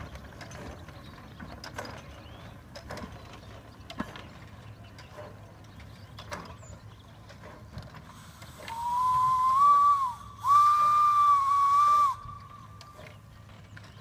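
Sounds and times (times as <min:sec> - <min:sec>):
steam hissing: 0:08.1 - 0:12.7
steam whistle blasts: 0:08.6 - 0:13.0.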